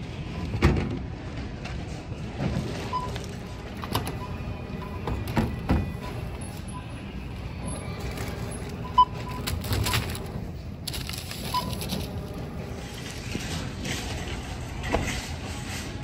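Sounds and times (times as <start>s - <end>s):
groceries and bags rustling: 1.2s - 16.0s
checkout scanner beeping: 2.7s - 13.1s.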